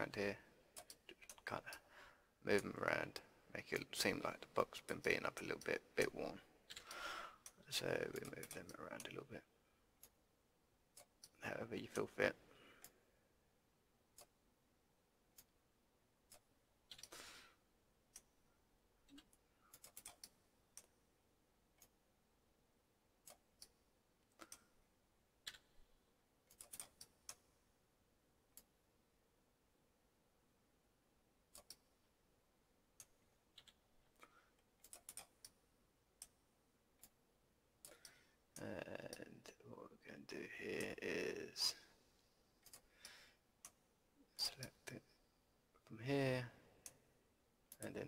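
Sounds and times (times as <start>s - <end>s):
computer keyboard and mouse clicking: 6.7s - 9.2s, 16.3s - 17.2s, 19.1s - 21.0s, 23.2s - 24.7s, 25.4s - 25.8s, 26.5s - 27.4s, 31.5s - 31.9s, 33.0s - 35.6s, 42.6s - 43.8s
mouse clicks: 31.5s - 31.9s.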